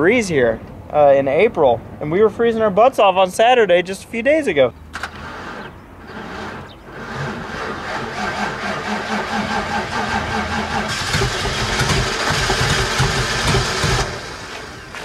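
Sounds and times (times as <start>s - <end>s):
starter cranking car engine: 5.0s - 15.0s
car engine running: 6.1s - 14.8s.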